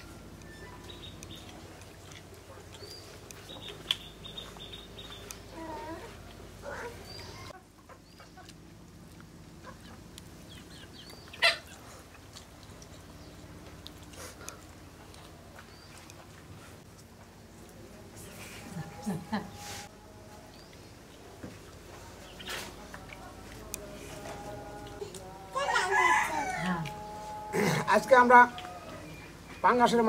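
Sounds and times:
birds chirping: 0.0s - 8.6s, 9.6s - 16.7s, 26.0s - 30.0s
chickens clucking: 0.0s - 8.6s, 9.6s - 16.8s.

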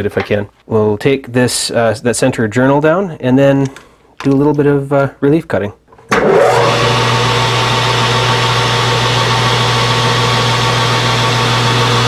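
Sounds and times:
lathe motor whine: 6.2s - 12.0s.

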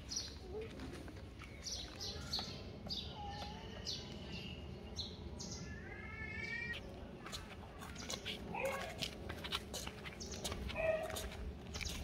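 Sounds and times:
birds chirping: 0.0s - 9.0s, 9.7s - 12.0s
steady low rumble: 6.8s - 12.0s.

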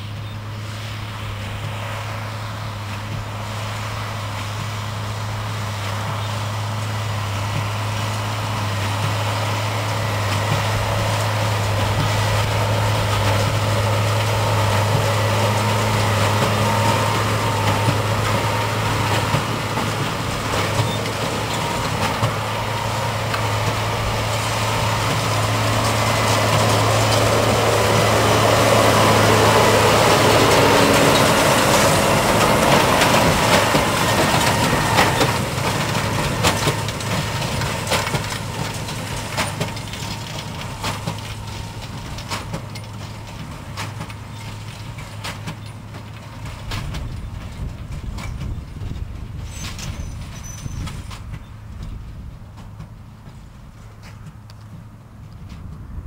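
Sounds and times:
tractor diesel engine under load: 0.0s - 56.0s
baler crunching and knocking: 7.4s - 55.9s.

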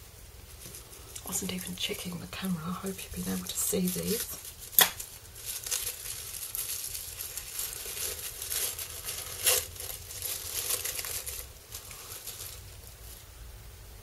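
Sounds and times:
tissue paper crinkling: 0.5s - 13.3s.

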